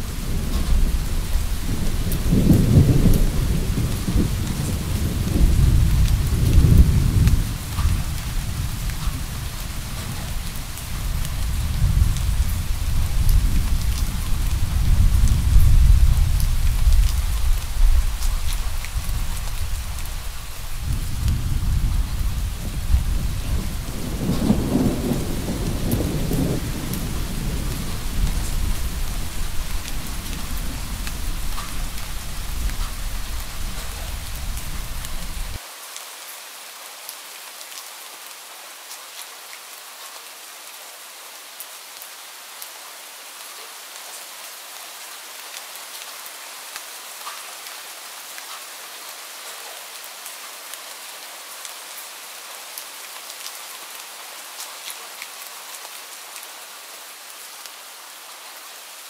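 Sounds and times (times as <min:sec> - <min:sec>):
steady rain falling: 0:00.0 - 0:59.0
distant thunder rumbling: 0:10.0 - 0:35.6.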